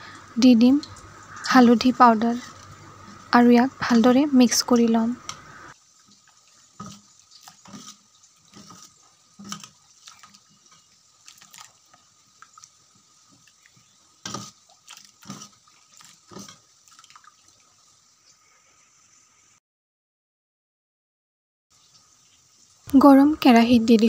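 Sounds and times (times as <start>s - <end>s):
wet slopping of thick dal: 6.8s - 10.5s.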